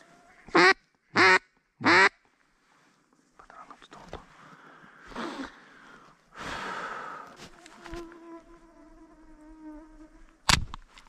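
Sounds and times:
flying insect buzzing: 7.2s - 10.5s.

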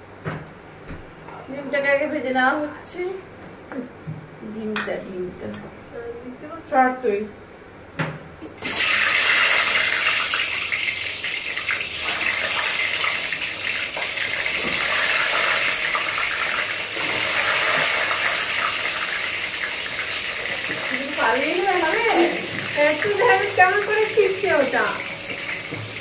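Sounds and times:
eggs sizzling in hot oil: 8.6s - 26.0s.

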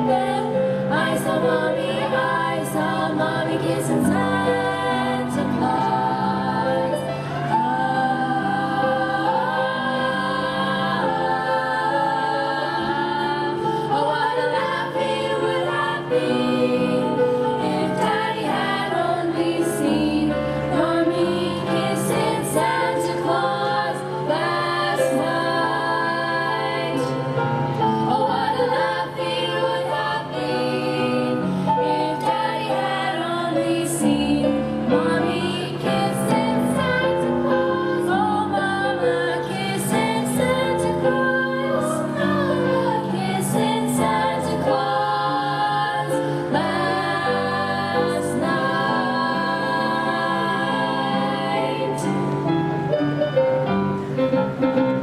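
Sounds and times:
choir singing in parts: 0.0s - 55.0s.

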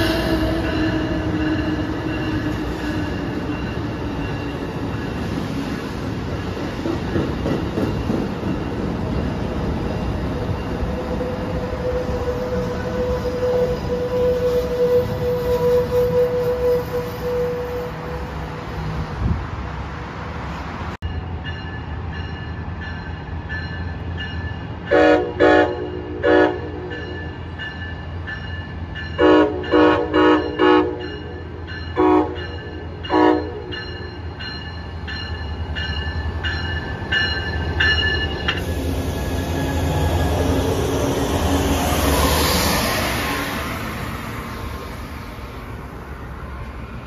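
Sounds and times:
locomotive engine and wheels passing: 0.0s - 25.0s, 25.7s - 47.0s
train horn blasts: 11.2s - 18.6s, 24.9s - 27.2s, 29.2s - 33.9s.

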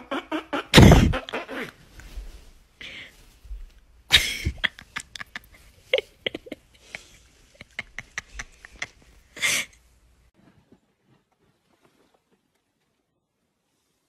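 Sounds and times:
raccoon huffing: 0.0s - 2.0s.

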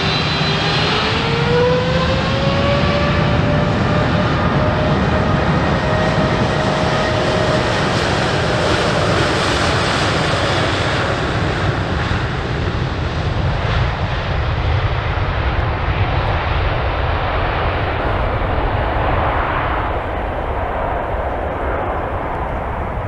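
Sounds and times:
jet engines roaring: 0.0s - 23.0s.

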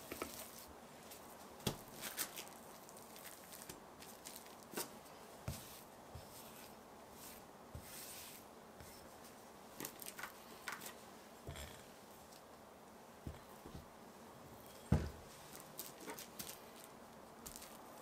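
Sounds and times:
soft scraping rustle: 0.0s - 12.4s.

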